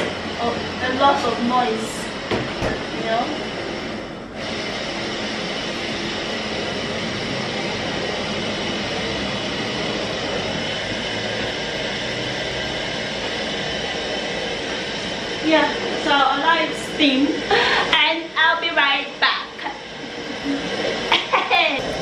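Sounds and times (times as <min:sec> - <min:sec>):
gas burner flame hissing: 0:00.0 - 0:22.0.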